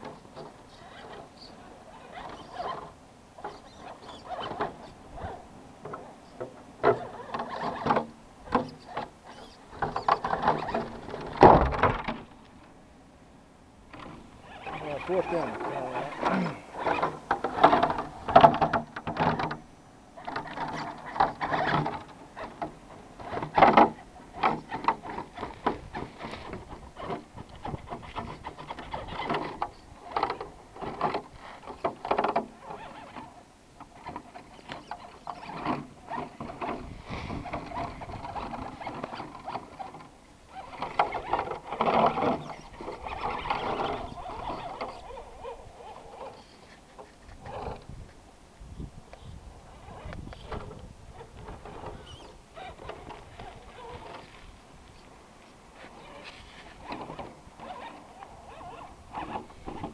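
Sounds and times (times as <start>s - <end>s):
electric motor and gearbox whining: 1.9s - 6.1s, 13.9s - 19.6s, 37.4s - 46.7s, 49.8s - 54.4s.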